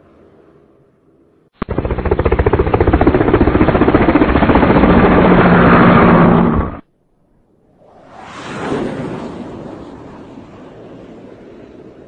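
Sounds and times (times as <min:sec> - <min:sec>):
fluttering aircraft engine: 0:01.6 - 0:06.9, 0:08.0 - 0:12.0.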